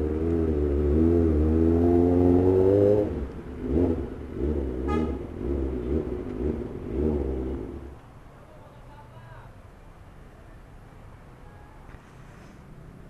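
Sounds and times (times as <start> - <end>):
motorcycle engine revving: 0.0 - 8.0.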